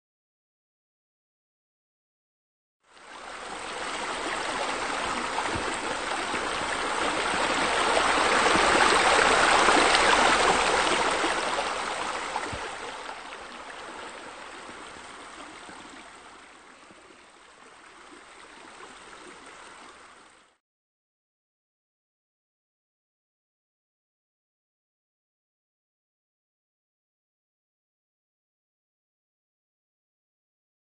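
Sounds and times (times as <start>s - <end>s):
running splashing water: 3.2s - 17.0s.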